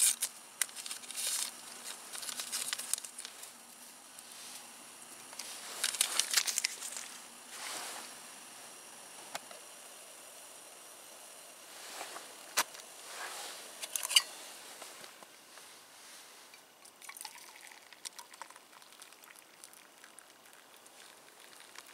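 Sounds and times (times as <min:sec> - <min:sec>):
crinkling: 0:00.0 - 0:08.1, 0:17.2 - 0:21.9.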